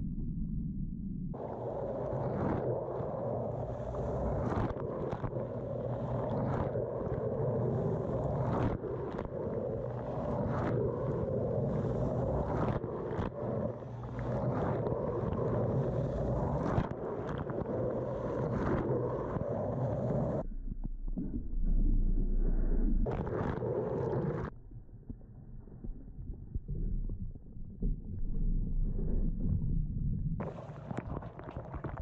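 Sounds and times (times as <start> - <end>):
muffled water jets spraying: 1.4 - 20.4, 30.4 - 32.0.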